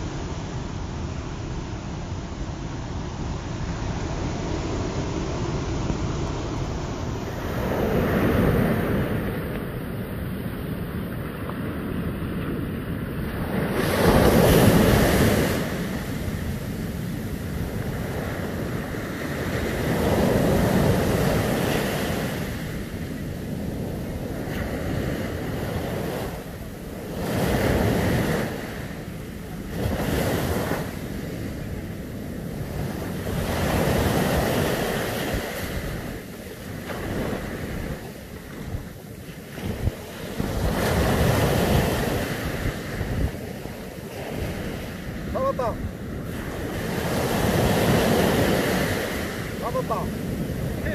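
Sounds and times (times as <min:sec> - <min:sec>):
surf breaking on a beach: 0:00.0 - 0:50.9
wind buffeting the microphone: 0:03.3 - 0:50.9.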